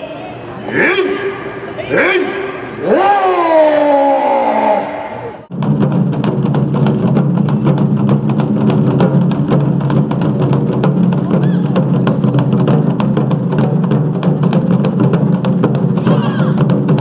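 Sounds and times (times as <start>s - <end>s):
taiko drum ensemble playing: 5.5s - 17.0s.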